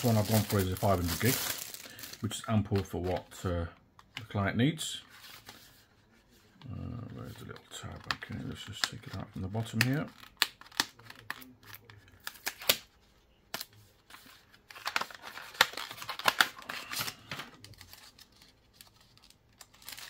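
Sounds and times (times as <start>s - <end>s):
packaging rustling and scraping: 0.0s - 3.2s.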